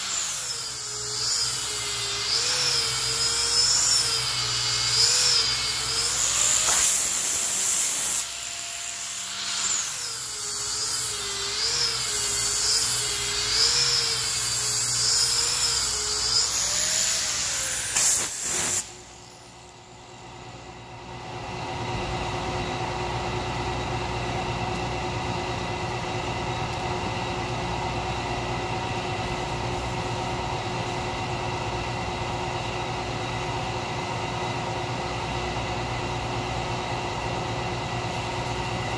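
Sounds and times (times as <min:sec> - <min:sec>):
angle grinder sanding wood: 0:00.0 - 0:18.9
steady mechanical hum: 0:00.0 - 0:38.9.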